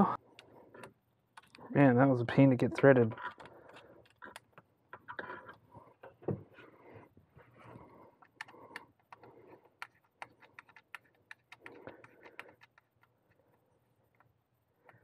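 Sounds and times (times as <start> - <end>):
hand tools clicking and tapping: 8.2 - 15.0.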